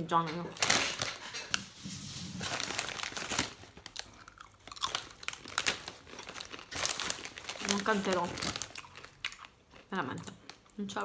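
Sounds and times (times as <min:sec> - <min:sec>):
person chewing crunchy food: 0:03.6 - 0:07.8, 0:08.4 - 0:10.8.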